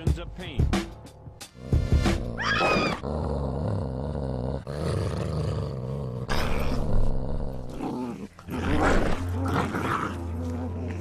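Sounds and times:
large dog growling low: 2.2s - 11.0s.

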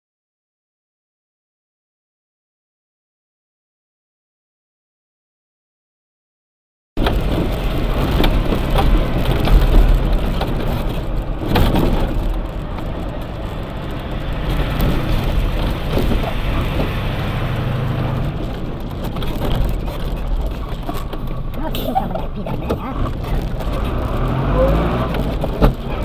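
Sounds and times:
vehicle engine and road noise: 7.0s - 26.0s.

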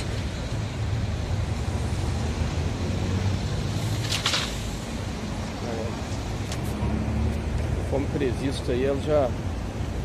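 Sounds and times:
road traffic rumble: 0.0s - 10.0s.

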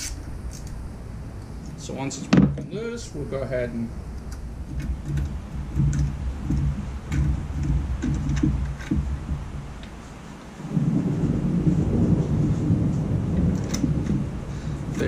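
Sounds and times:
low rattling rumble of tools: 0.0s - 15.0s.

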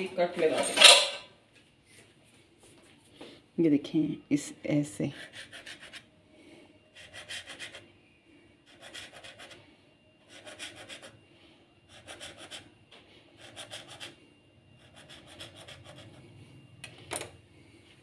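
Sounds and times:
knife cutting dough: 5.1s - 6.1s, 7.0s - 7.9s, 8.7s - 9.6s, 10.3s - 11.2s, 11.9s - 12.7s, 13.4s - 14.2s, 14.8s - 16.3s.

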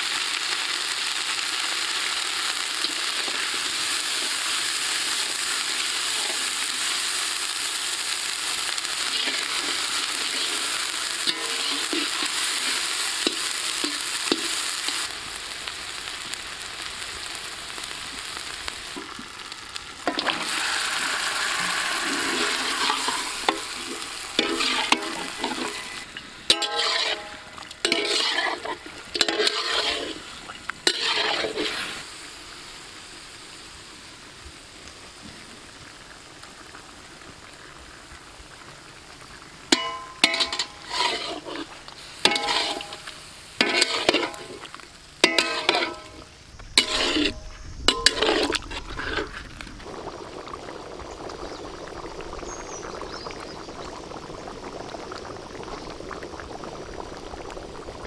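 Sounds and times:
faint frying sizzle: 0.0s - 58.0s
gravy bubbling in a pan: 0.0s - 58.0s
spatula scraping an iron pan: 24.4s - 30.2s, 30.8s - 32.0s, 39.8s - 44.6s, 45.2s - 46.2s, 46.8s - 49.4s.

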